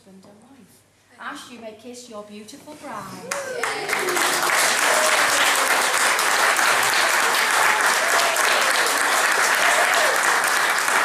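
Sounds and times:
crowd applauding and cheering: 3.3s - 11.0s.

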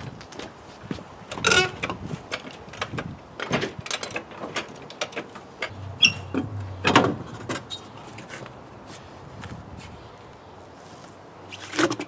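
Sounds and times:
wrench and wheel bolts clicking: 1.4s - 7.8s
wheel scuffing: 6.0s - 12.0s.

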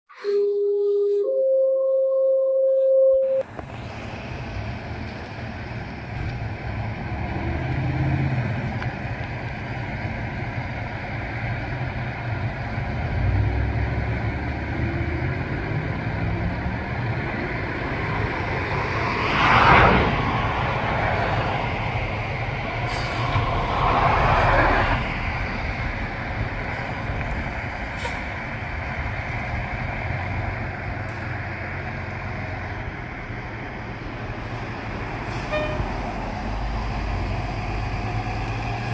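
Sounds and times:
air brake hisses: 22.9s - 23.4s, 28.0s - 28.4s.

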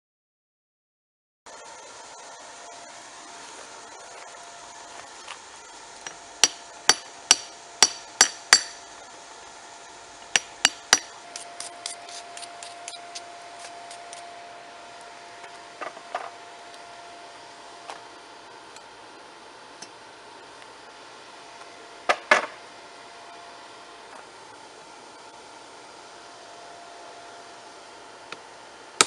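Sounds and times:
steady hum: 1.5s - 29.0s
hatchet striking metal anvil: 6.0s - 8.9s, 10.3s - 13.0s.

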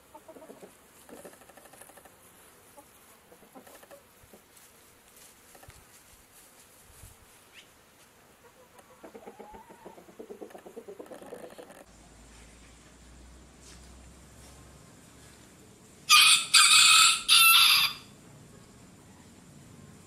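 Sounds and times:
chickens clucking: 0.0s - 4.7s, 7.5s - 11.9s.

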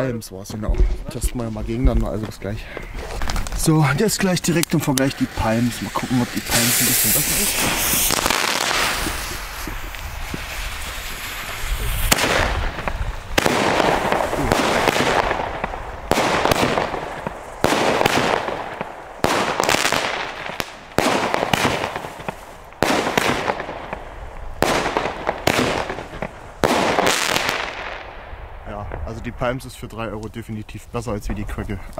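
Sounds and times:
firework battery bangs: 4.5s - 29.2s.

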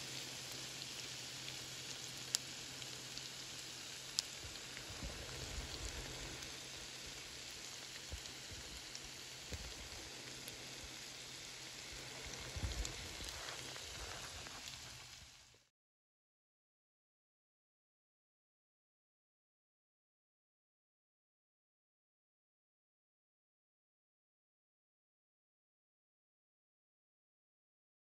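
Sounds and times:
food sizzling in a pan: 0.0s - 15.7s.

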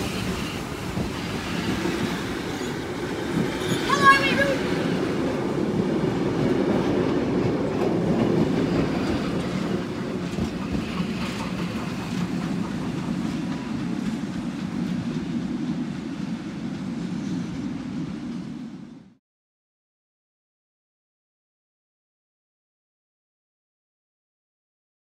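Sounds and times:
wheels clacking over rail joints: 0.0s - 15.4s
train carriages rumbling: 0.0s - 19.1s.

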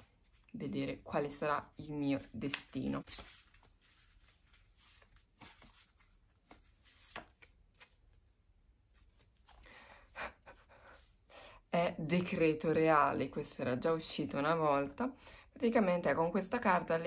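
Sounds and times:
cards being shuffled: 1.9s - 8.3s, 8.9s - 9.8s.

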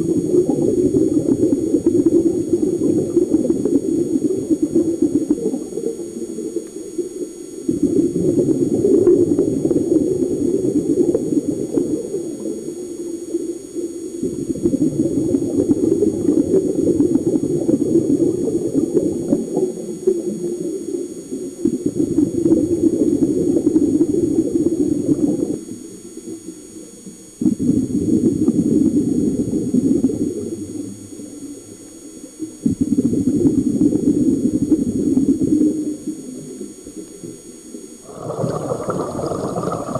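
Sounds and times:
underwater exhaust bubbles: 0.0s - 39.9s.

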